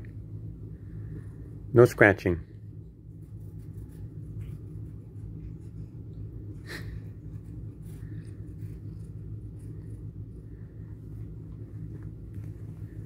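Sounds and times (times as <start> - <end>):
low room hum: 0.0 - 13.0
cat rustling on bedspread: 10.8 - 13.0.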